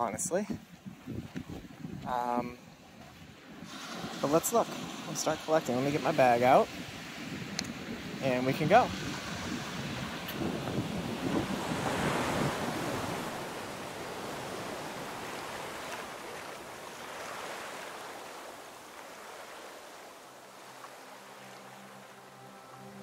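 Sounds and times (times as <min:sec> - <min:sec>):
wind buffeting microphone: 0:00.0 - 0:20.2
surf on pebbly beach: 0:02.3 - 0:23.0
soft music: 0:20.4 - 0:23.0.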